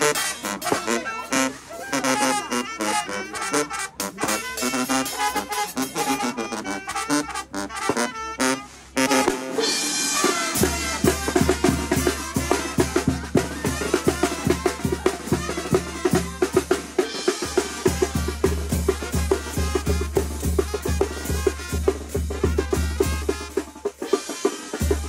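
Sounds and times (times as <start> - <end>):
brass band playing: 0.0 - 25.0
tuba: 0.0 - 25.0
cymbal crash: 9.6 - 11.4
bass drum beat: 10.1 - 23.6, 24.8 - 25.0.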